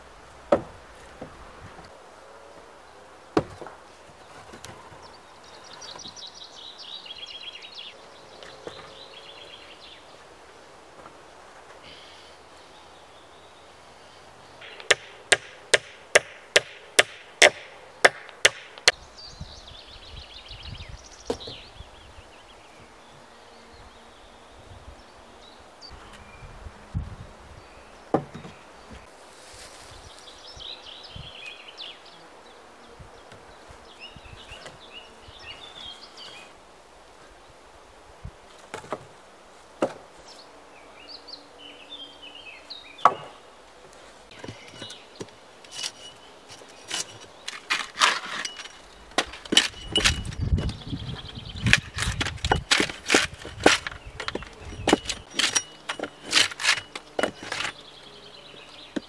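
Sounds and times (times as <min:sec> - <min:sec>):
wooden poles knocking: 0:14.6 - 0:18.9, 0:43.1 - 0:43.4
hatchet chopping into log: 0:14.6 - 0:19.0, 0:39.8 - 0:40.0, 0:43.0 - 0:43.4.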